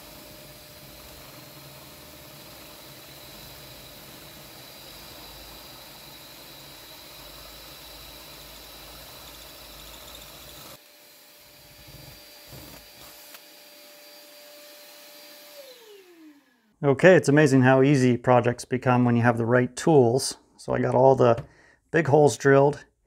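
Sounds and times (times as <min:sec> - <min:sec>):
cordless drill boring: 0:00.0 - 0:16.8
shop vacuum running: 0:00.0 - 0:16.8.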